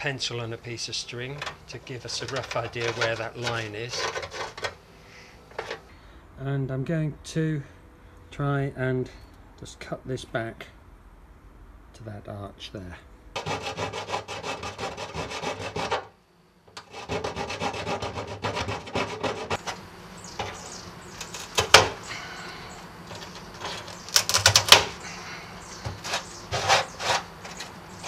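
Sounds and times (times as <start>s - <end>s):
saw blade cutting fiberglass: 1.8s - 4.7s, 13.4s - 16.1s, 16.7s - 19.8s, 23.1s - 28.0s.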